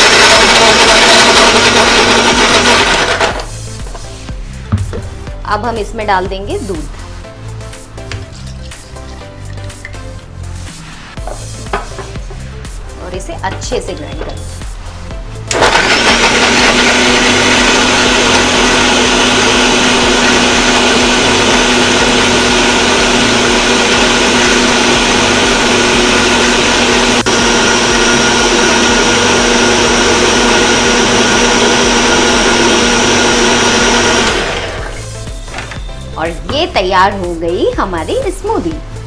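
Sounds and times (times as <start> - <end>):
mixer grinder motor hum: 0.0 - 3.6, 15.5 - 35.7.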